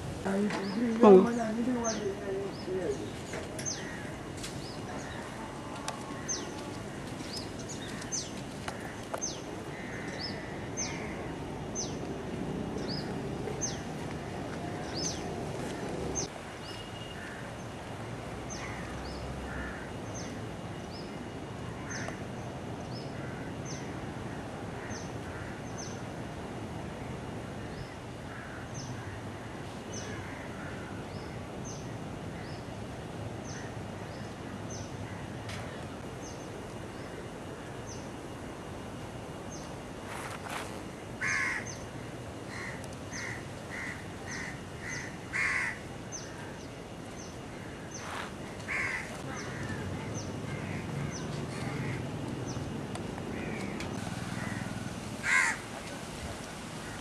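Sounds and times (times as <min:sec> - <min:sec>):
outdoor background: 0:00.0 - 0:57.0
crows cawing: 0:03.7 - 0:04.3, 0:07.8 - 0:11.3, 0:18.6 - 0:20.0, 0:23.2 - 0:24.0, 0:24.8 - 0:25.6, 0:28.3 - 0:31.0, 0:41.2 - 0:41.8, 0:42.5 - 0:46.3, 0:47.5 - 0:52.0, 0:53.3 - 0:55.7.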